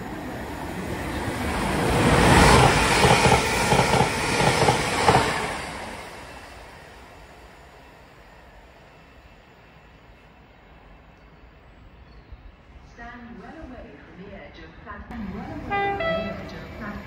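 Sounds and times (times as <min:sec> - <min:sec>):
passenger train passing at speed: 0:00.0 - 0:17.0
train wheels clacking: 0:02.3 - 0:05.6.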